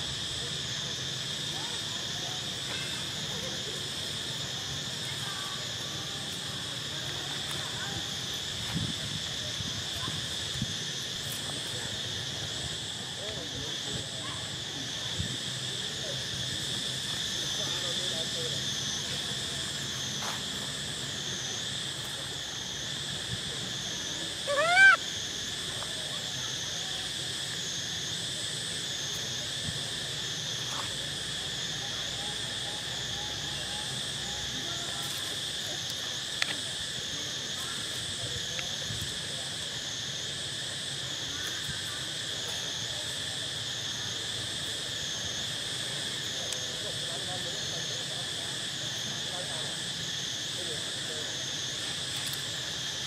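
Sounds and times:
cicadas shrilling: 0.0s - 53.0s
rising animal call: 24.4s - 25.0s.

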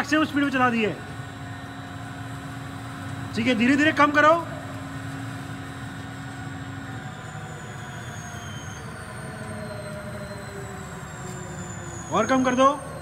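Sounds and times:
bandsaw whining falling in pitch: 3.3s - 13.0s.

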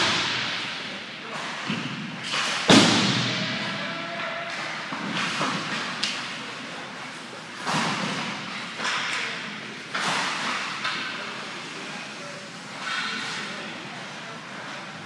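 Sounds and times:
hockey stick hitting puck: 1.4s - 6.4s.

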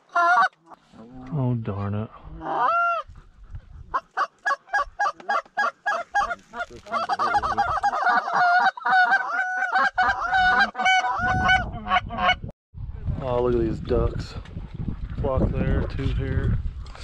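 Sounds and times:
goose honking: 4.2s - 12.4s.

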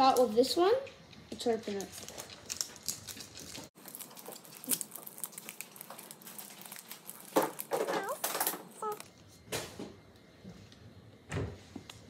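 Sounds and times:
foil wrapper crinkling and tearing: 1.7s - 9.1s.

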